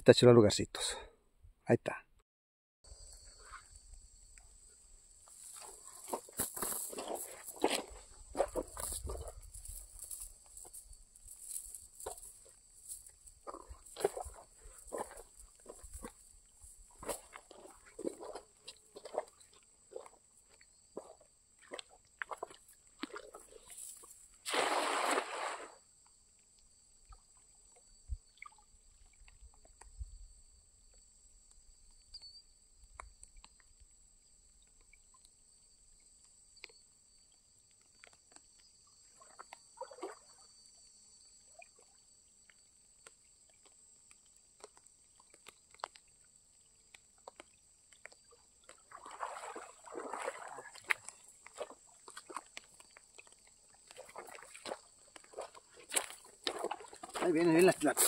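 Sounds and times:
water sloshing: 0:05.4 - 0:10.8, 0:13.2 - 0:20.2, 0:48.6 - 0:58.0
net splashing into water: 0:21.6 - 0:25.8, 0:39.2 - 0:40.4, 0:48.6 - 0:52.5
water dripping: 0:42.5 - 0:46.2, 0:46.8 - 0:57.8.

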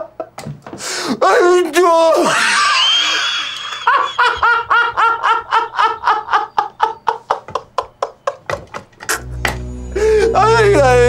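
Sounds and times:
man laughing through a gag: 0:02.2 - 0:09.4.

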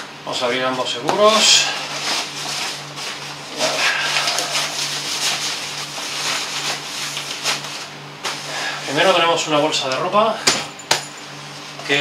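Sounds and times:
backpack fabric and straps rustling: 0:01.8 - 0:08.6.

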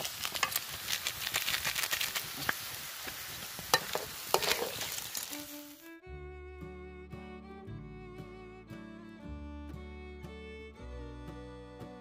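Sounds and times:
snails sizzling: 0:00.0 - 0:05.9
metal spatula scraping wok: 0:03.7 - 0:05.6.

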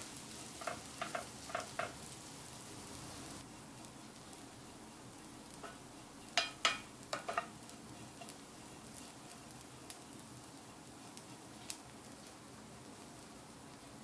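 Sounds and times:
fish sizzling in frying pan: 0:00.0 - 0:14.0
spatula scraping pan: 0:00.3 - 0:02.0, 0:05.5 - 0:10.2
spatula tapping pan: 0:00.4 - 0:02.1, 0:05.4 - 0:09.4.

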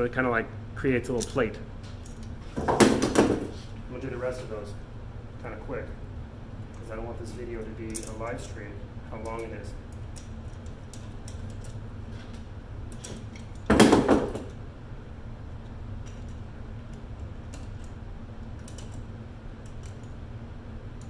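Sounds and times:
clicks of screws and metal parts: 0:07.8 - 0:08.2, 0:18.6 - 0:19.0.

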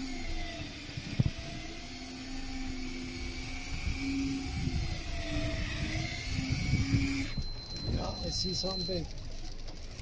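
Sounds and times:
wind buffeting microphone: 0:00.2 - 0:02.0, 0:02.6 - 0:09.3
boat engine idling: 0:06.8 - 0:10.0.

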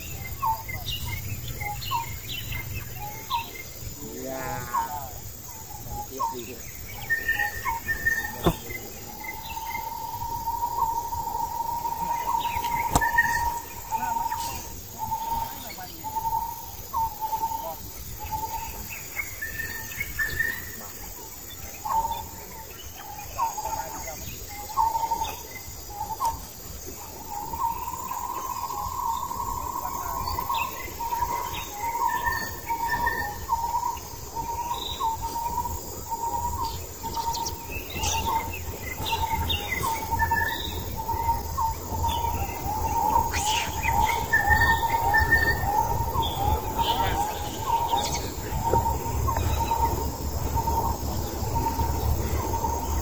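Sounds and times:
short chirping calls: 0:05.7 - 0:20.9.

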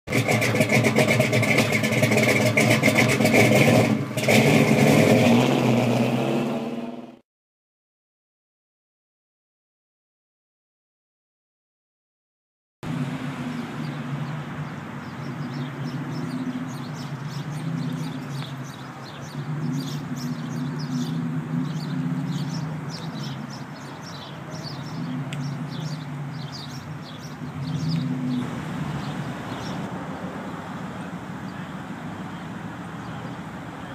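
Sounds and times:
car engine idling: 0:00.1 - 0:06.1, 0:12.8 - 0:33.9
bird chirps: 0:13.4 - 0:29.9.

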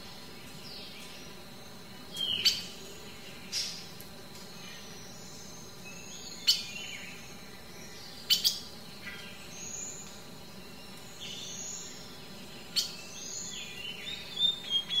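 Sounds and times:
small birds chirping: 0:00.0 - 0:15.0
whistled bird calls: 0:12.7 - 0:15.0.

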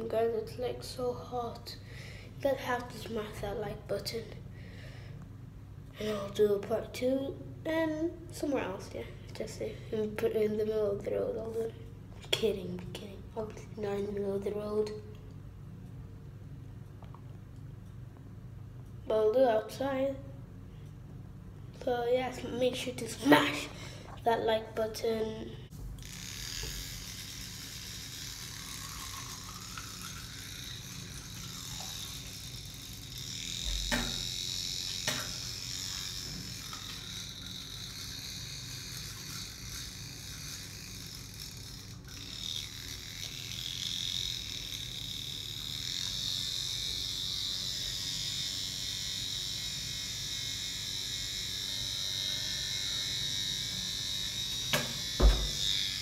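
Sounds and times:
electric toothbrush buzzing: 0:22.7 - 0:56.0
sharp knocks: 0:54.8 - 0:55.6.

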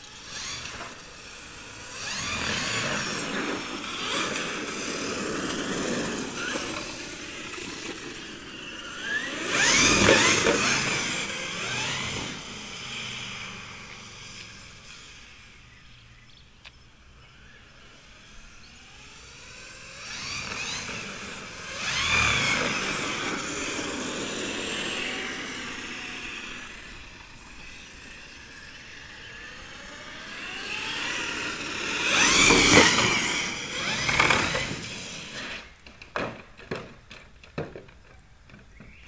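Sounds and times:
rc truck electric motor whining: 0:00.0 - 0:16.1, 0:16.9 - 0:36.0.

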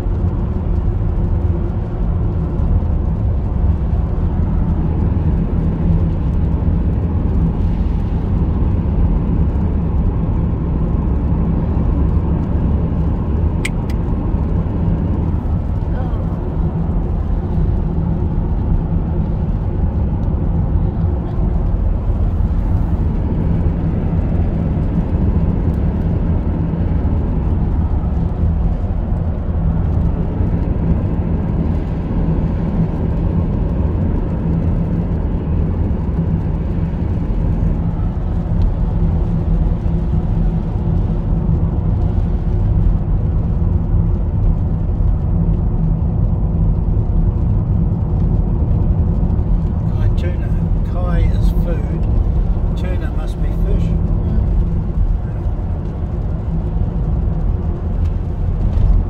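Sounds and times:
car interior road rumble: 0:00.0 - 0:59.0.

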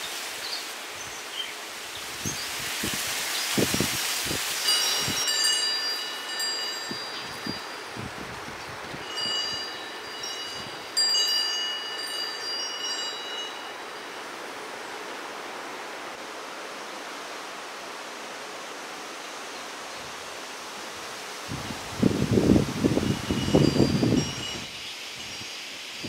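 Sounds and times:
steady background hiss: 0:00.0 - 0:26.0
metal wind chime ringing: 0:04.6 - 0:08.2, 0:08.9 - 0:14.2, 0:23.0 - 0:25.5.

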